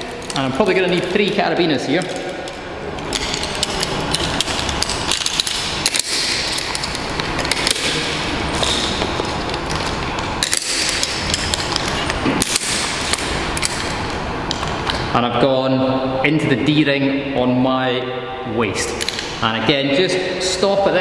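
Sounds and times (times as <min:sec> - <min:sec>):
metal carabiners clinking and clicking: 0:02.0 - 0:14.7, 0:18.9 - 0:19.4.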